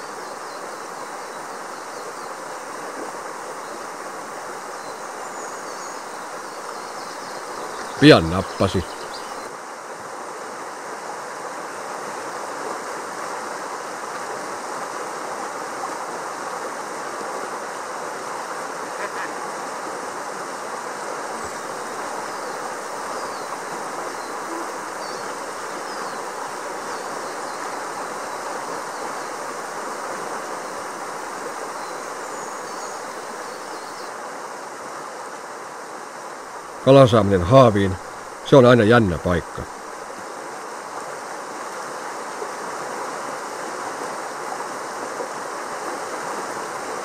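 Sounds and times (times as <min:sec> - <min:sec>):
river rapids roaring over rocks: 0:21.3 - 0:35.8.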